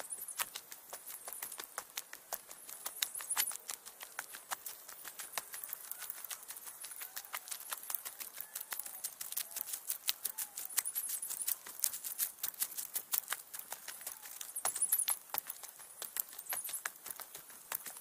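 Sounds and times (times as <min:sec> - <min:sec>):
footsteps crunching on gravel: 0:00.0 - 0:18.0.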